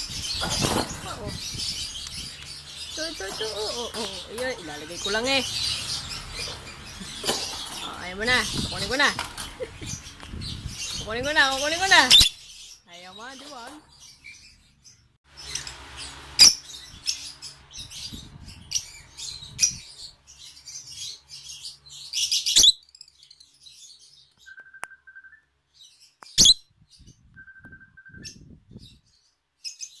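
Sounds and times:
parrots chirping: 0.0 - 23.5.

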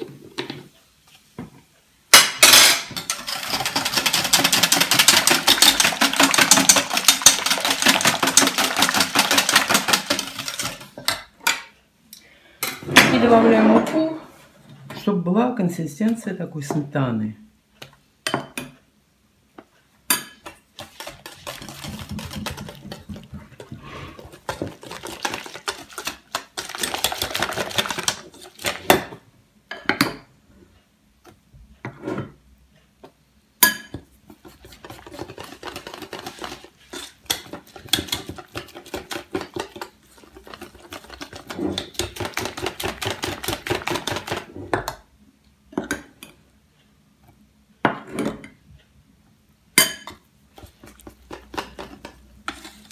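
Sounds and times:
whisk rattling against metal bowl: 2.9 - 11.1, 20.1 - 29.0, 34.4 - 44.5, 50.6 - 52.9.

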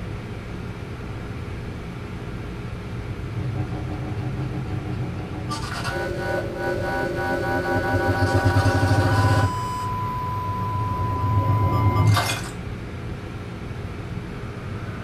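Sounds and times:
low hum: 3.1 - 12.2
sustained chord: 3.2 - 12.0
steady beep-like tone: 3.3 - 12.3.

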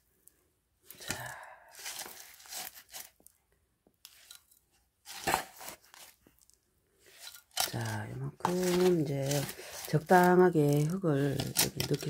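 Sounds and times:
gritty soil pouring into pot: 7.1 - 12.0.

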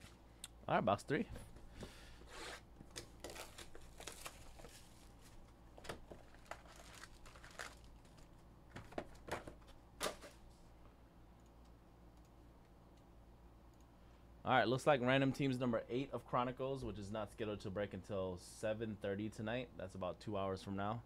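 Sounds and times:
foil packs crinkling: 2.9 - 10.3.

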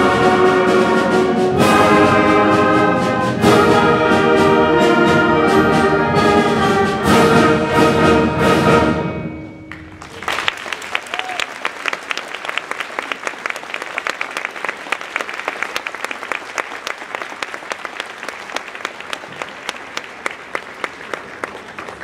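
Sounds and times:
large crowd applauding: 9.7 - 22.0.

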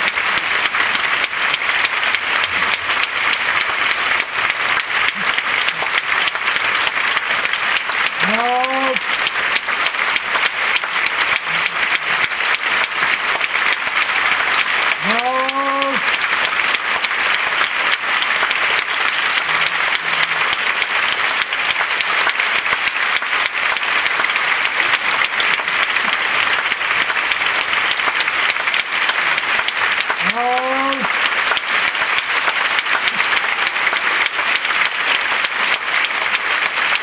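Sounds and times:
audience applauding: 0.0 - 37.0
person shouting: 8.2 - 9.0, 15.0 - 16.1, 30.2 - 31.1.

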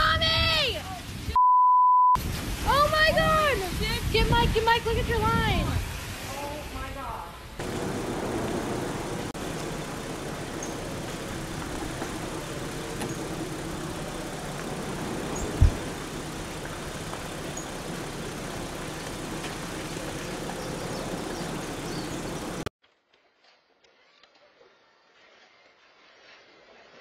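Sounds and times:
short low thump: 15.5 - 15.9.

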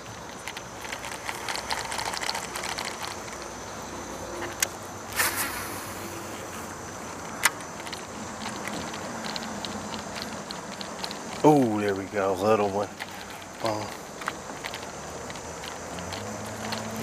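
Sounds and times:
steady hiss: 0.0 - 17.0
high steady whine: 1.2 - 9.8
short loud burst: 5.1 - 6.2.

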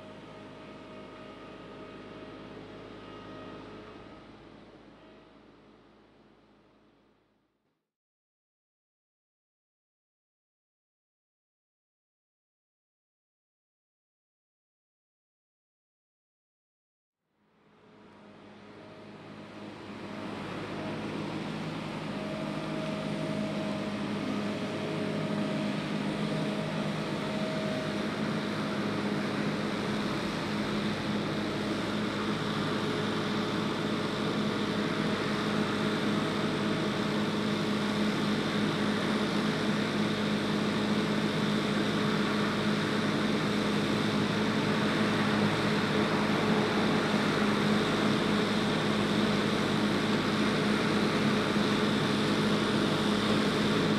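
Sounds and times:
waste compactor engine humming: 18.2 - 53.9.

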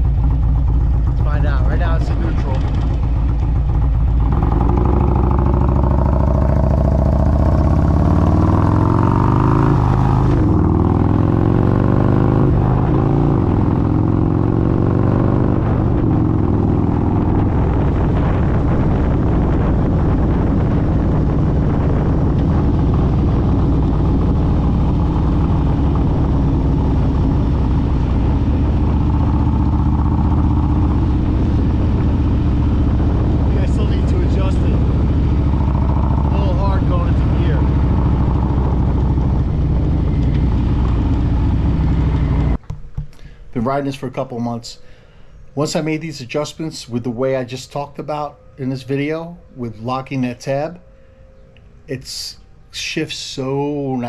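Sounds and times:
motorcycle accelerating: 0.0 - 42.8
wind noise on microphone: 1.0 - 42.6.

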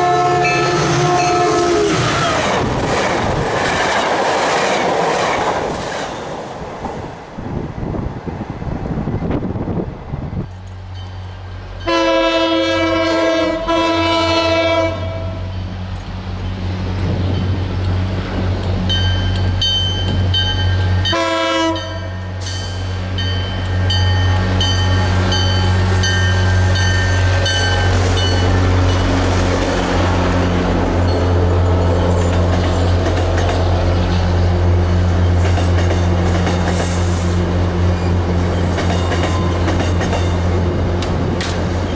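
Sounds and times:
train horn blasts: 0.0 - 2.3, 11.8 - 15.6, 21.0 - 22.4
train wheels clattering on rails: 0.5 - 7.1, 21.8 - 41.9
locomotive engine drone: 9.4 - 41.9.

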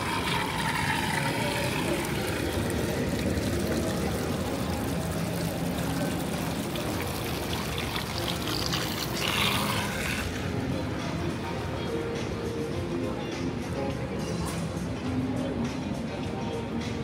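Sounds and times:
water pouring into pool: 0.0 - 10.5.

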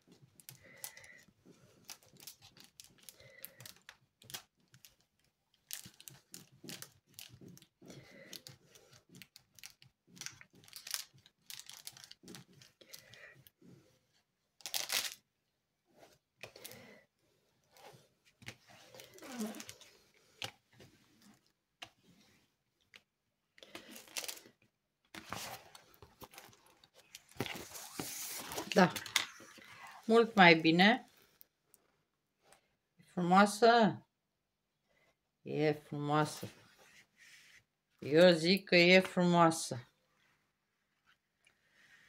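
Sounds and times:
plastic film crinkling: 0.4 - 13.2, 14.6 - 15.2, 23.8 - 24.5, 25.2 - 30.2.

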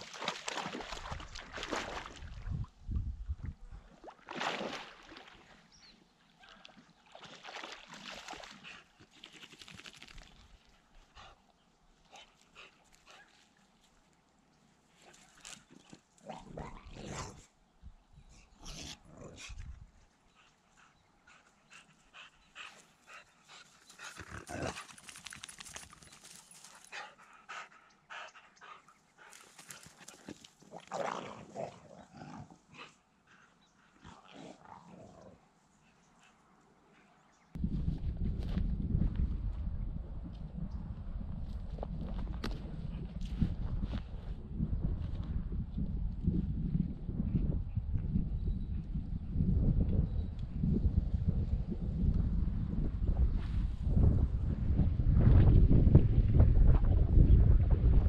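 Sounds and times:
dog panting: 20.4 - 24.3, 26.8 - 29.9.

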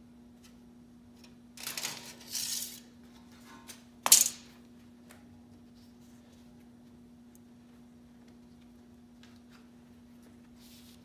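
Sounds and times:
metal tools scraping: 1.6 - 2.9.

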